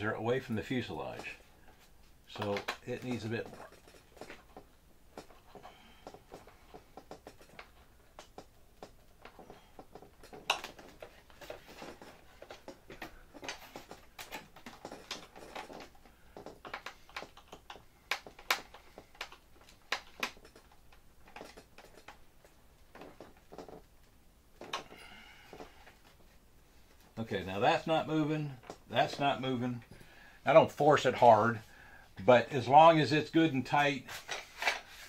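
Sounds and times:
hands handling plastic and foam: 0.3s - 29.6s, 33.8s - 35.0s
screwdriver clicking and creaking: 2.4s - 23.9s.

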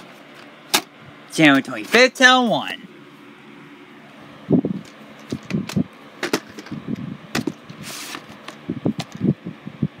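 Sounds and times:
plastic case scraping slide: 7.4s - 8.6s.

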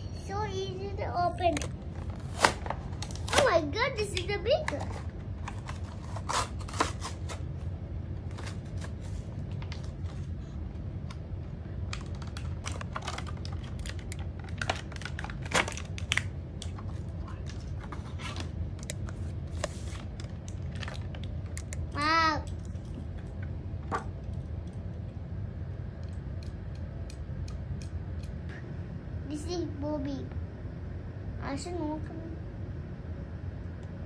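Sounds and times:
steady low hum: 0.0s - 34.0s
plastic packaging crinkling: 11.8s - 21.8s.

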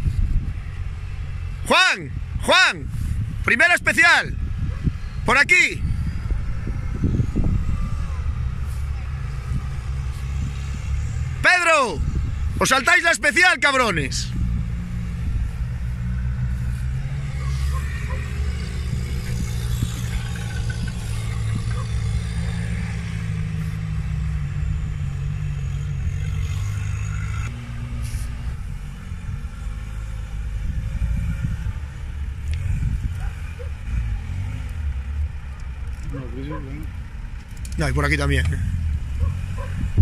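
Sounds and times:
off-road engine low rumble: 0.0s - 40.0s.

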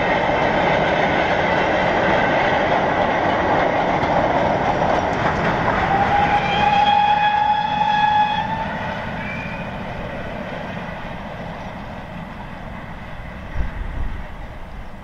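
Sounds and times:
goods train rumbling past: 0.0s - 15.0s
steam locomotive whistle: 5.7s - 9.9s.

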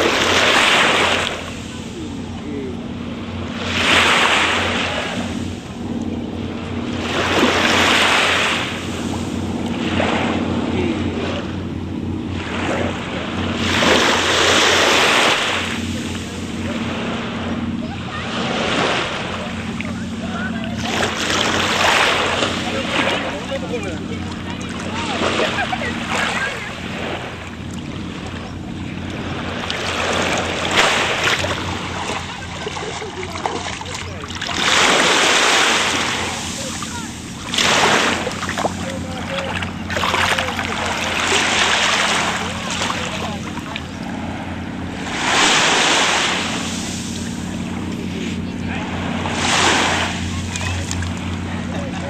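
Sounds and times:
rushing water: 0.0s - 52.0s
steady low hum: 0.0s - 52.0s
surf washing on a beach: 0.0s - 52.0s.

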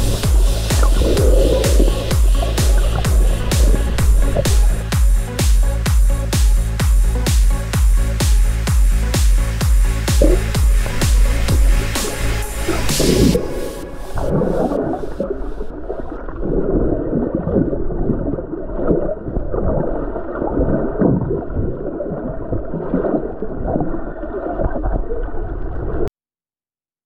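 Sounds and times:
underwater water churning and gurgling: 0.0s - 5.0s, 10.1s - 26.1s.

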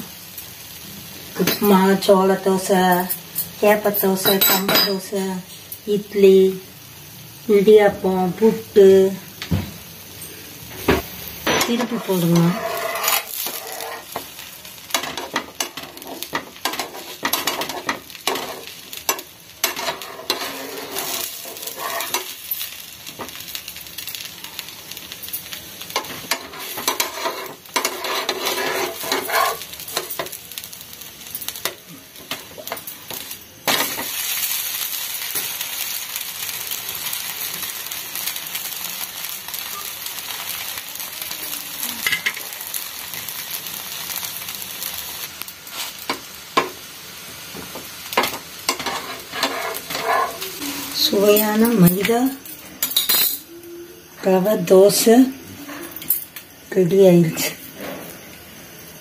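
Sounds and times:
dosa sizzling in a pan: 0.0s - 59.0s
steel spatula scraping a pan: 11.5s - 14.3s, 14.9s - 22.7s, 26.0s - 30.4s, 48.7s - 51.6s.

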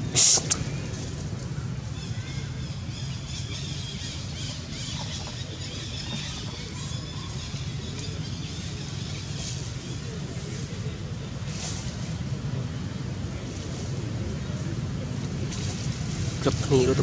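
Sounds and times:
light hiss: 0.0s - 1.0s.

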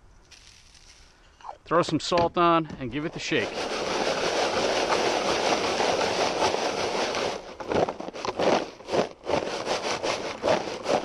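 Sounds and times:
fries shaken in a cardboard box: 3.2s - 11.0s.

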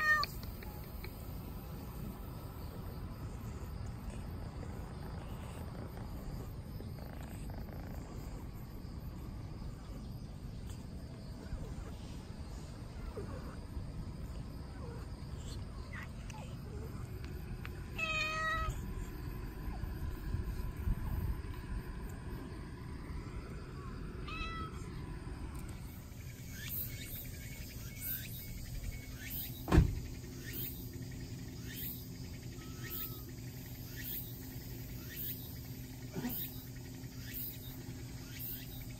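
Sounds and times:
cat meowing: 0.0s - 0.4s, 18.0s - 18.8s, 24.2s - 24.8s
low background rumble: 0.2s - 26.6s.

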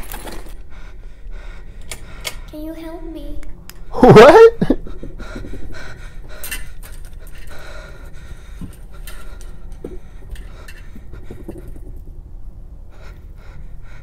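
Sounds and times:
person breathing heavily: 0.5s - 2.6s, 4.6s - 12.1s, 12.8s - 14.0s.

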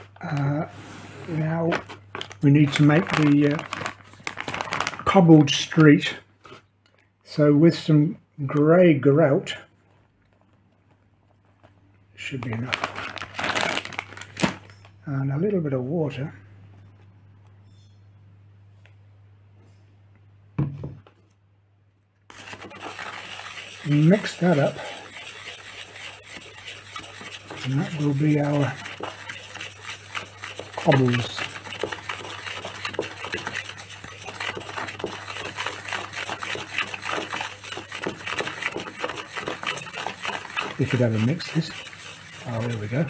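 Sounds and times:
gritty scraping of stirred grout: 0.4s - 5.3s, 22.3s - 43.0s.

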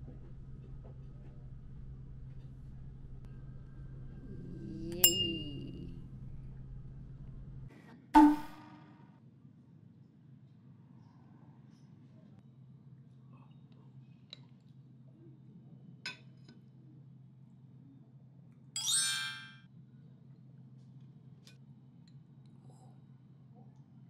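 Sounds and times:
low steady hum: 0.0s - 8.9s
bright chime: 5.0s - 5.6s, 18.8s - 19.6s.

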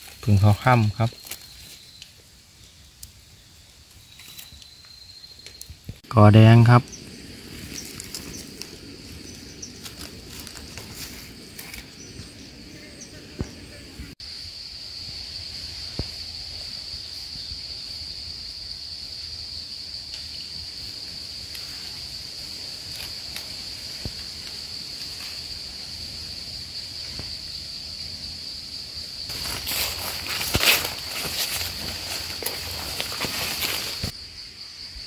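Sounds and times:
insects droning: 0.0s - 35.0s
footsteps crunching dry leaves: 7.0s - 11.9s, 29.3s - 34.1s.

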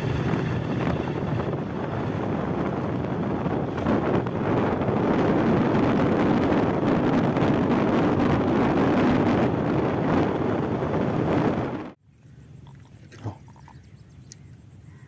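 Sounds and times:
wind buffeting microphone: 0.0s - 12.0s.

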